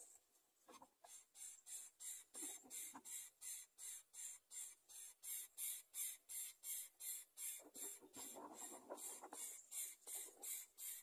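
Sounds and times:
nestlings begging with hisses: 0:01.1 - 0:11.0.

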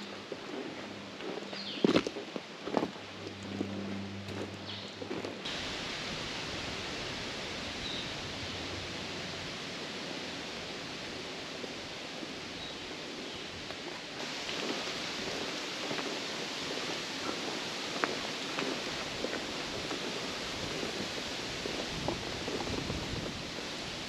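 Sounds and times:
rushing hiss: 0:05.4 - 0:24.0.

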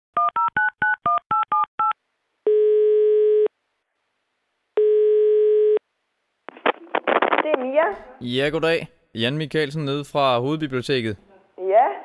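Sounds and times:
telephone ringing tone: 0:04.8 - 0:05.8.

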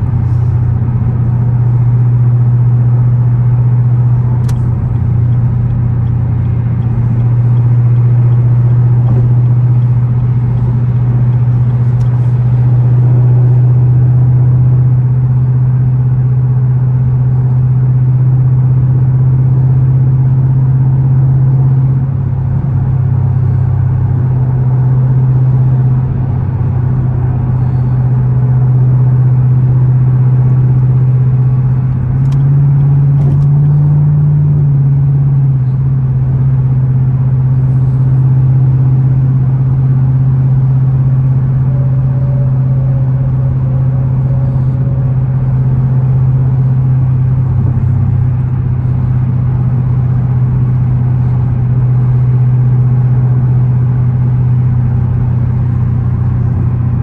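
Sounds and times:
car engine drone: 0:00.0 - 0:57.0.

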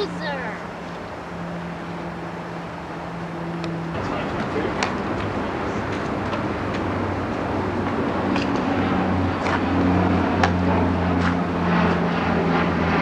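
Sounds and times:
aircraft engine drone: 0:00.0 - 0:13.0.

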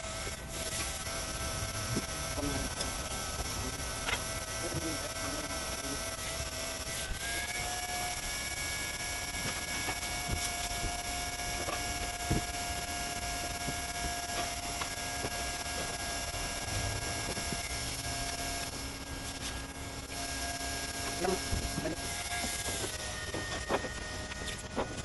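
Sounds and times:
hot-air welding gun blower whine: 0:00.0 - 0:25.0.

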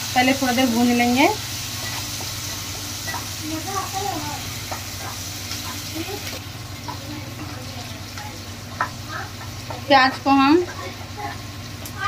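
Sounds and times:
onions sizzling in hot oil: 0:00.0 - 0:12.0
spatula scraping and tapping pan: 0:01.6 - 0:07.6, 0:08.2 - 0:11.3.

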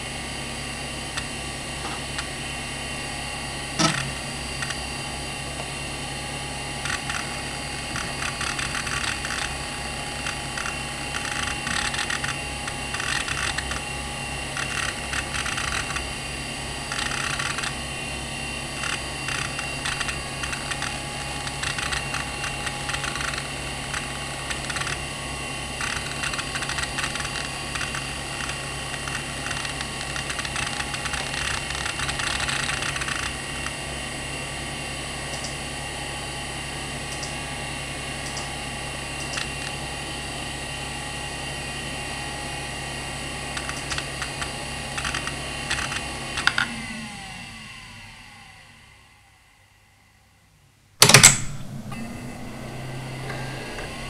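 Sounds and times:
low hum: 0:00.0 - 0:33.8, 0:51.0 - 0:54.0
hard drive whine: 0:00.0 - 0:54.0
hard drive seeking clicks: 0:01.1 - 0:02.4, 0:03.7 - 0:05.8, 0:06.7 - 0:16.2, 0:16.8 - 0:33.8, 0:35.3 - 0:35.6, 0:37.1 - 0:37.5, 0:38.2 - 0:39.9, 0:43.5 - 0:46.8.

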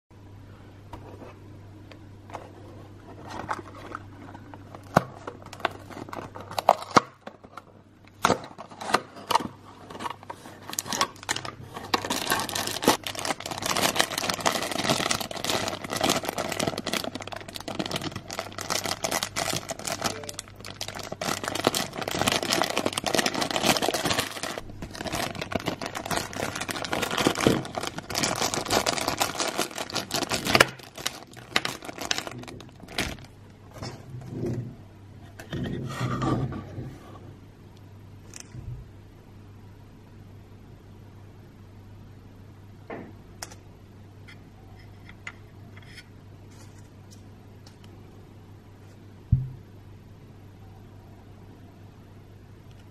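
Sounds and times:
plastic bag crinkling: 0:08.4 - 0:33.4.

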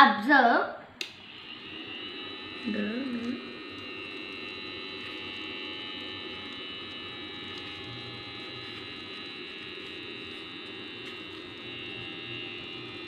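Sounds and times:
small electric motor whining: 0:01.0 - 0:13.0.

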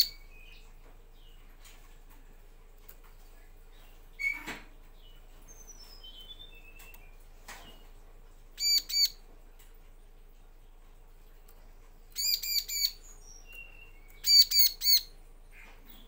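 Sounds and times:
sharp high bird chirps: 0:08.6 - 0:09.2, 0:12.2 - 0:15.1.

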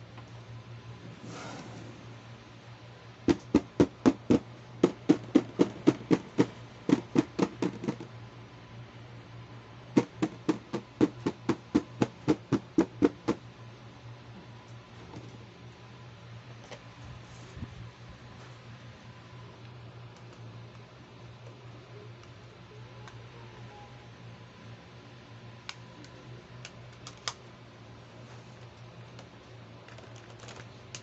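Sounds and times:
fingers tapping on plastic box: 0:03.3 - 0:08.1, 0:10.0 - 0:13.4.

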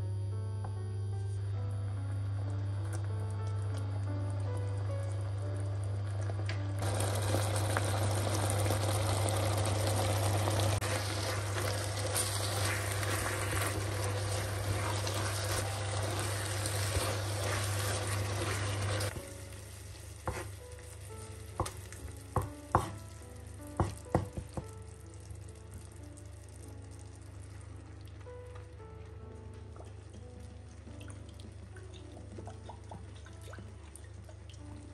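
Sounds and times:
food sizzling in oil: 0:06.8 - 0:24.6
wooden spatula stirring: 0:10.8 - 0:23.0.

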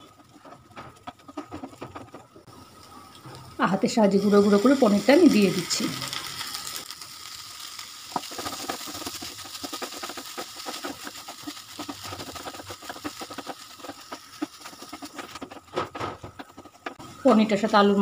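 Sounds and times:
spatula tapping and scraping pan: 0:00.0 - 0:02.5, 0:08.1 - 0:17.5.

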